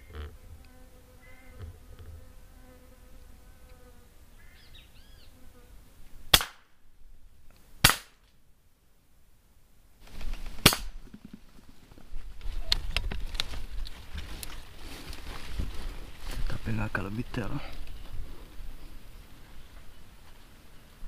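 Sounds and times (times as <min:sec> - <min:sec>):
air rifle shots: 0:06.3 - 0:06.7, 0:07.8 - 0:08.2, 0:10.6 - 0:11.0.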